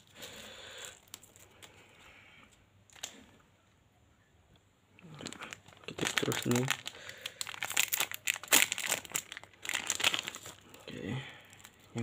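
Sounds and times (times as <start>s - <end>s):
plastic wrapper crinkling: 0.0s - 3.4s, 5.0s - 12.0s.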